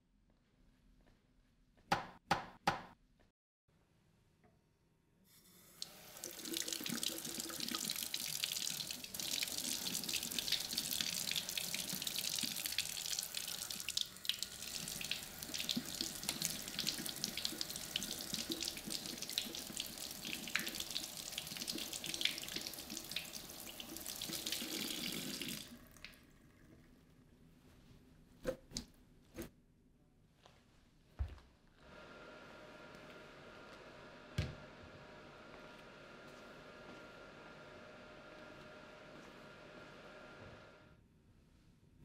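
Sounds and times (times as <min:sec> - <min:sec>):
water splashing from tap: 0:05.8 - 0:26.3.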